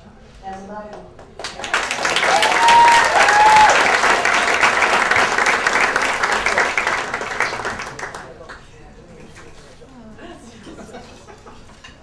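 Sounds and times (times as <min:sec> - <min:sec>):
crowd applauding: 0:01.3 - 0:08.6
person whooping: 0:02.3 - 0:04.0.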